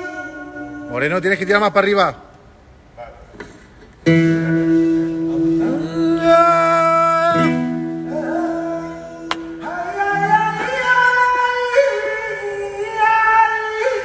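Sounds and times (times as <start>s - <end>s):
voices singing held notes: 4.7s - 14.0s.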